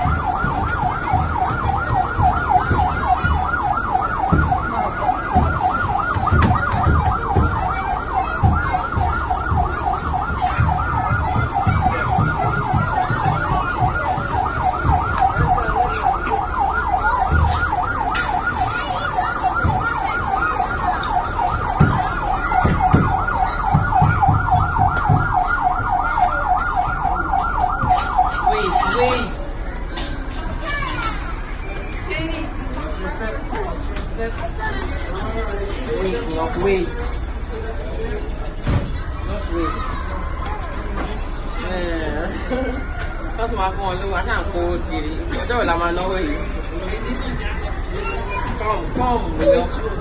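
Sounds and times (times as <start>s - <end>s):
toy fire truck siren warbling: 0.0s - 30.1s.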